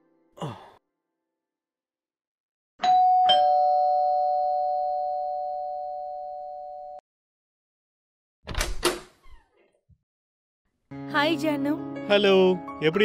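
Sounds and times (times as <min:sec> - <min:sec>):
two-note doorbell chime: 0:02.8 - 0:07.0.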